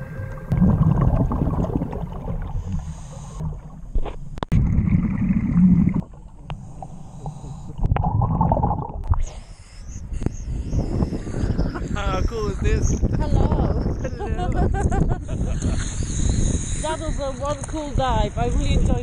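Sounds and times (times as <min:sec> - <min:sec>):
underwater bubbles gurgling: 0:00.0 - 0:09.3.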